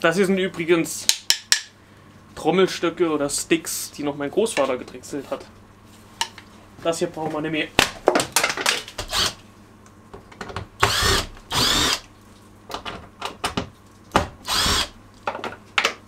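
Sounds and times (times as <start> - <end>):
cordless drill running: 9.1 - 9.4, 10.8 - 12.0, 14.4 - 15.0.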